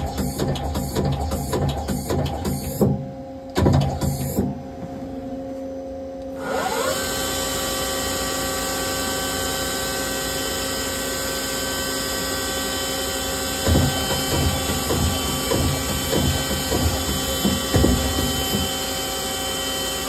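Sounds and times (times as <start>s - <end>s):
lathe spindle whining: 6.4s - 20.0s.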